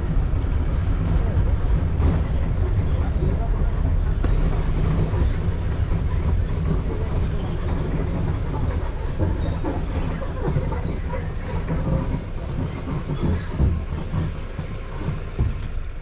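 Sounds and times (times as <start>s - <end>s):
vehicle rumbling on dirt track: 0.0s - 16.0s.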